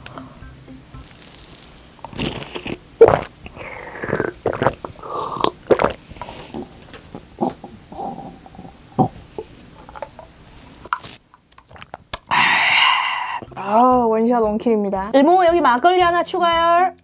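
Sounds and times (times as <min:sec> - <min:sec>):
wet slurping and sucking: 0:01.1 - 0:09.5, 0:11.6 - 0:13.6.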